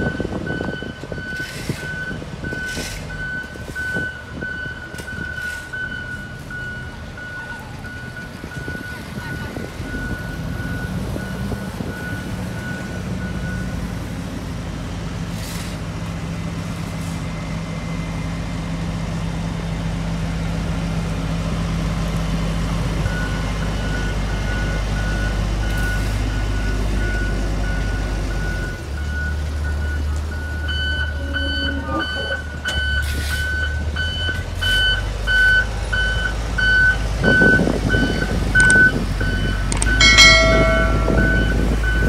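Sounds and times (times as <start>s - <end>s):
diesel engines running: 0.0s - 42.0s
reversing alarm beeping: 23.1s - 42.0s.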